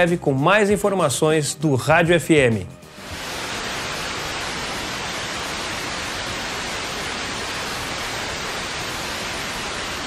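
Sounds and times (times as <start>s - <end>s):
radio static hiss: 2.9s - 10.0s.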